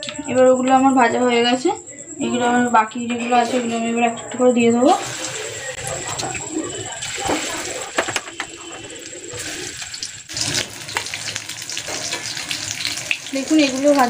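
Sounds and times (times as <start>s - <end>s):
food deep-frying in oil: 5.0s - 14.0s.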